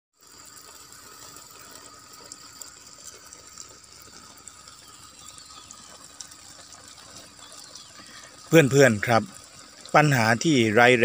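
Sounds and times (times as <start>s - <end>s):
garden sprinkler spraying water: 0.1s - 11.0s.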